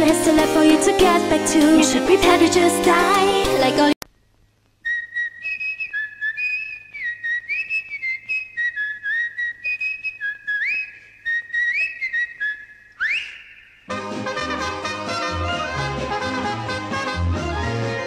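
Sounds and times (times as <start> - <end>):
person whistling a tune: 4.9 - 13.6.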